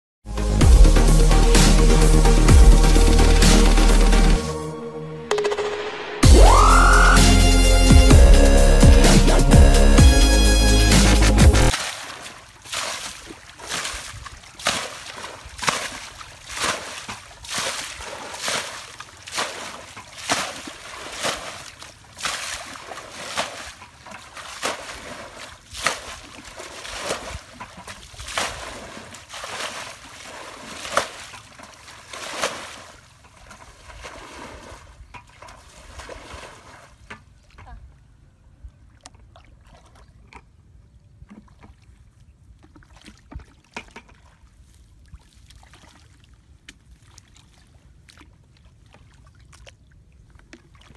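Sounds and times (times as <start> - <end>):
water splashing from a bucket: 11.6 - 37.7, 42.6 - 50.9.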